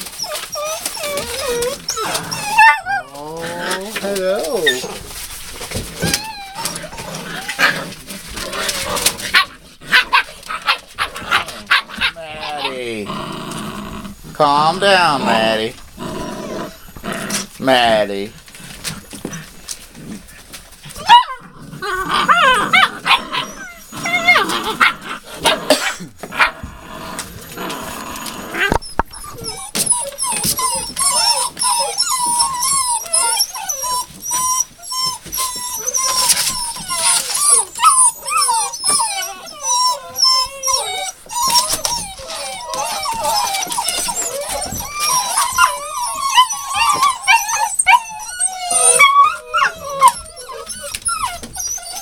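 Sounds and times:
newspaper rustling: 0.0s - 9.3s
puppies whining: 0.0s - 52.0s.

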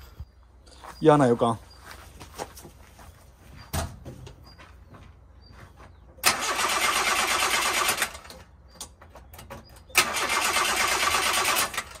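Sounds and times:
starter motor cranking engine: 6.2s - 8.4s, 9.9s - 12.0s.

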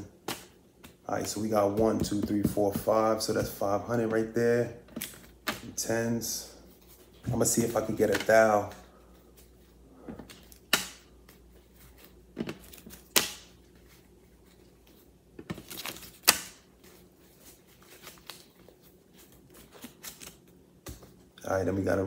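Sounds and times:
sharp paper snaps: 15.7s - 16.6s.

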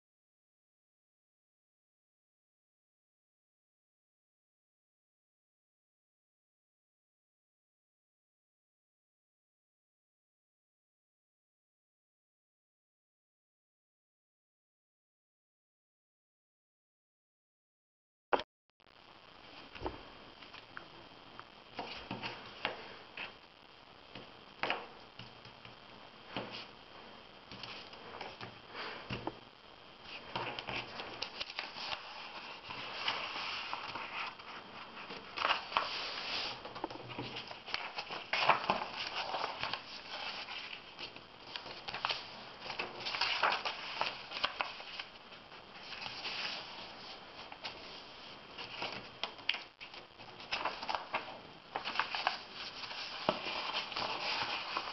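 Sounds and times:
paper rustling and folding: 21.7s - 23.4s, 27.5s - 29.3s, 30.0s - 54.9s.

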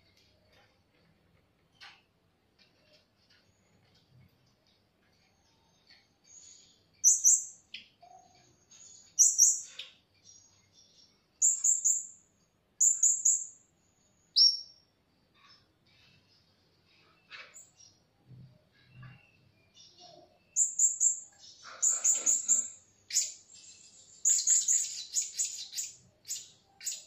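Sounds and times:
parrots chirping high-pitched: 24.2s - 27.0s.

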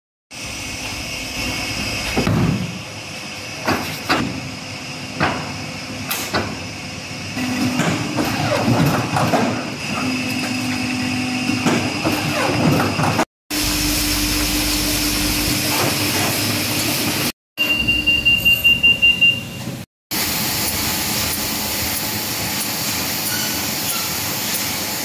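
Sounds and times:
steady machine hum: 13.5s - 18.5s.

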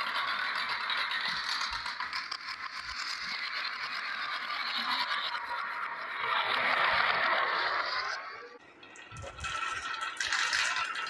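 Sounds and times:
glass marbles clattering on wood: 8.6s - 11.0s.

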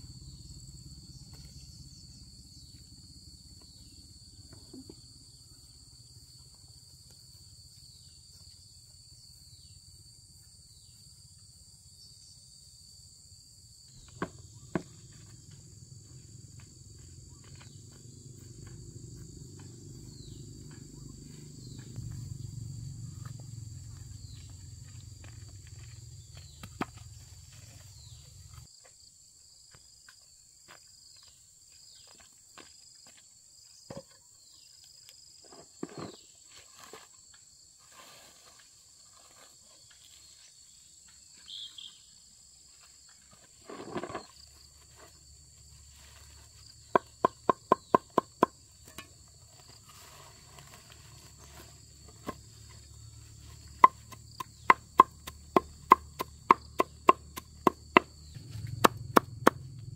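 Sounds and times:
insects calling: 0.0s - 59.9s
sharp chopping strikes: 53.8s - 59.8s.

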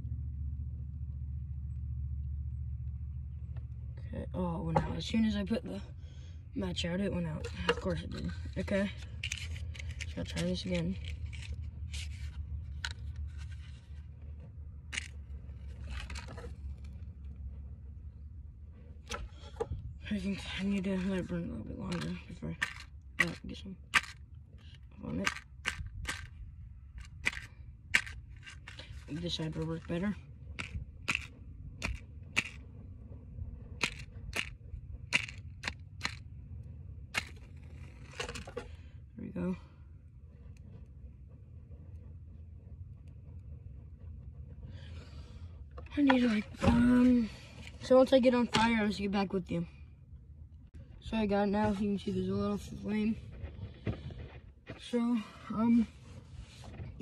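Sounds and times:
matches striking a matchbox: 7.5s - 14.0s, 14.9s - 16.5s, 21.9s - 26.3s, 27.0s - 30.0s, 30.6s - 32.6s, 33.8s - 36.2s, 37.2s - 38.6s
low wind rumble on microphone: 7.8s - 23.8s, 25.6s - 35.6s.

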